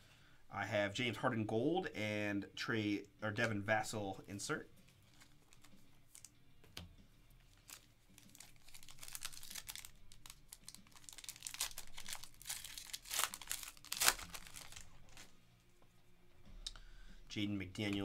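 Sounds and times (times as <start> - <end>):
foil wrapper crinkling and tearing: 5.1 - 6.3, 7.5 - 15.3.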